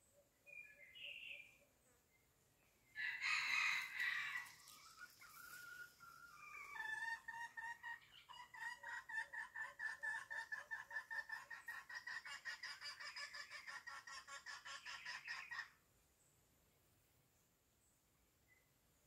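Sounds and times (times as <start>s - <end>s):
chicken calling: 3.0s - 15.7s.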